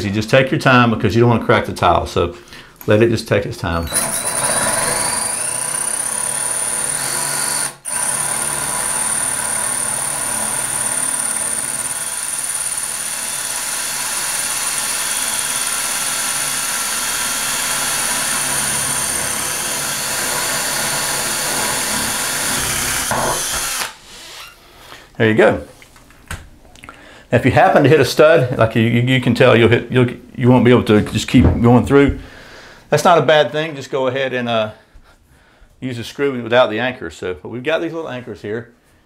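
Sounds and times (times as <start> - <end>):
cordless drill whining into tile: 3.8 - 24.6.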